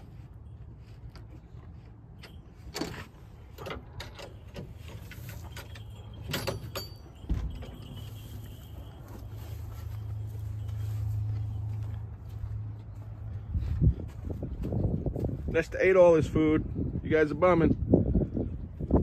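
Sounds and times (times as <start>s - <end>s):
wind rumble on microphone: 13.3s - 19.0s.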